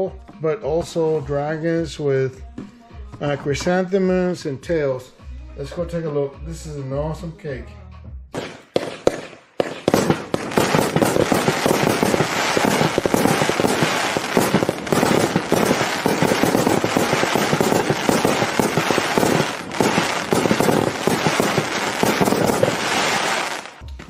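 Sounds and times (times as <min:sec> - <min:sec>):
firework cake barrage: 0:08.4 - 0:23.8.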